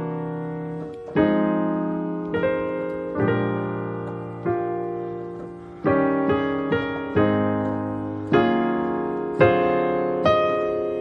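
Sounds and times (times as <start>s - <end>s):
piano playing gospel chords: 0.0s - 11.0s.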